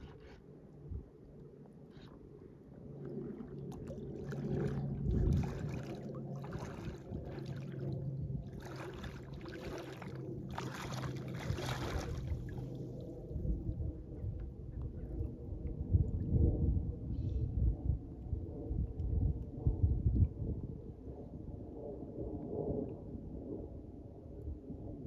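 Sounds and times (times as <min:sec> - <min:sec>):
steady low hum: 0:00.0 - 0:21.8
small waves lapping and splashing: 0:01.9 - 0:13.4
wind thump on microphone: 0:04.6 - 0:05.9.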